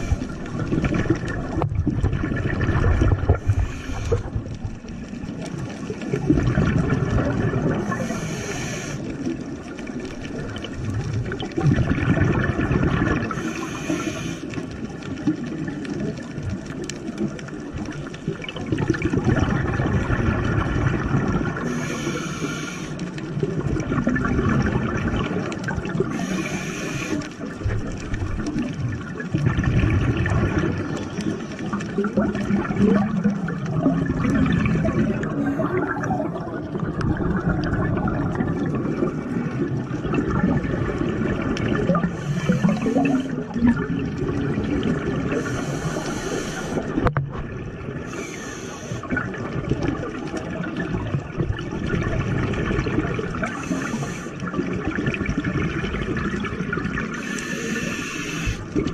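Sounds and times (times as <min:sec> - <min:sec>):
bubbly exhales: 0:00.0 - 0:16.2, 0:18.0 - 0:58.9
regulator hissing inhales: 0:03.4 - 0:04.4, 0:07.9 - 0:09.1, 0:13.4 - 0:14.6, 0:21.6 - 0:23.0, 0:26.1 - 0:27.3, 0:42.1 - 0:43.4, 0:45.4 - 0:47.0, 0:48.1 - 0:49.1, 0:53.5 - 0:54.4, 0:57.2 - 0:58.8.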